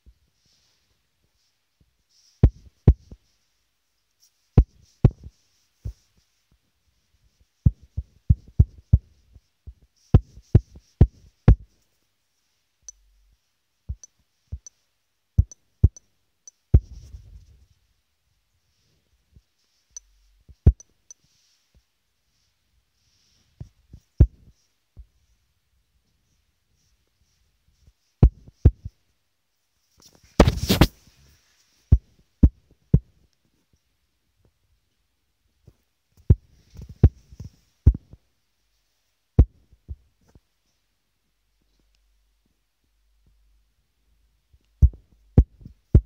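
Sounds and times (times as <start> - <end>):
taps on a phone touchscreen: 13.9 - 14.7, 15.4 - 16.9, 20.7 - 20.9.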